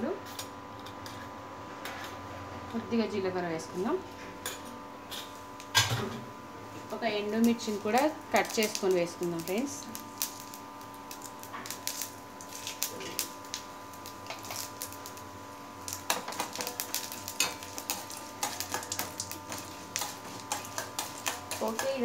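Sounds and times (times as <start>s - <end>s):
spices sizzling in hot oil: 2.7s - 22.0s
sharp crackling pops: 7.3s - 22.0s.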